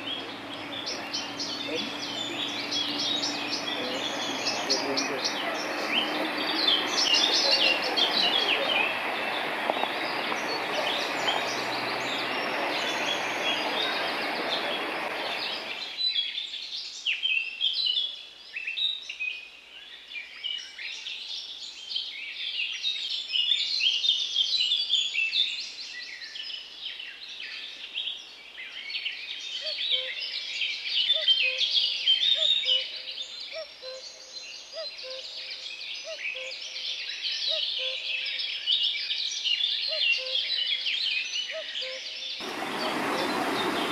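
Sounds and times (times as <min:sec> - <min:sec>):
stream rushing over rocks: 0:00.0 - 0:16.0, 0:42.4 - 0:43.9
songbirds chirping: 0:00.0 - 0:43.9.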